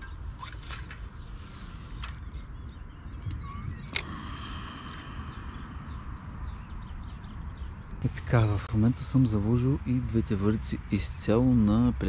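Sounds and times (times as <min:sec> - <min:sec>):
small birds chirping: 0:00.0 - 0:12.0
low rumble: 0:01.0 - 0:10.9.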